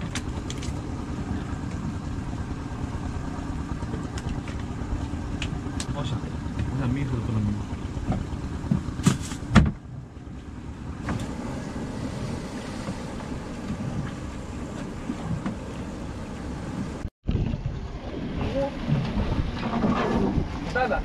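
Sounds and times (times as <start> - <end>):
sea water around a boat: 0.0 - 21.0
wind on microphone: 7.6 - 21.0.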